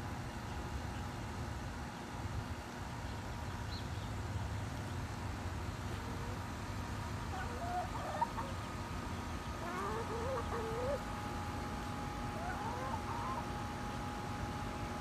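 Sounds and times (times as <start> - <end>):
faint background hum: 0.0 - 15.0
hen calling: 7.3 - 8.7, 9.4 - 11.2, 12.2 - 13.8.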